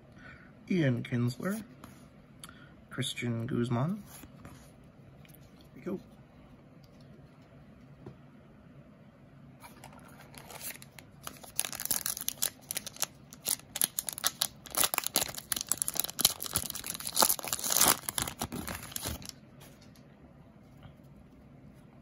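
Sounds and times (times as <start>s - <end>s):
card pack wrapper tearing and crinkling: 9.9s - 19.4s.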